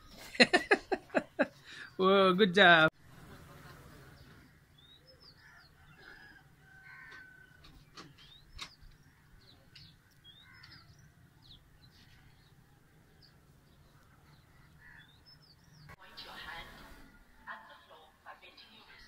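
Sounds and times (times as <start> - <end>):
birds chirping: 0.0 - 17.3
low bird calls: 4.1 - 12.6, 13.2 - 15.9.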